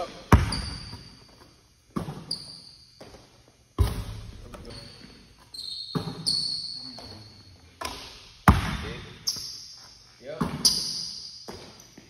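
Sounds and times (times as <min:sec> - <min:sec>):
basketball bouncing on wooden floor: 0:00.3 - 0:01.2, 0:01.9 - 0:03.2, 0:03.8 - 0:04.7, 0:05.9 - 0:07.2, 0:07.8 - 0:09.5, 0:10.4 - 0:11.8
high squeaks: 0:00.5 - 0:03.0, 0:04.5 - 0:07.7.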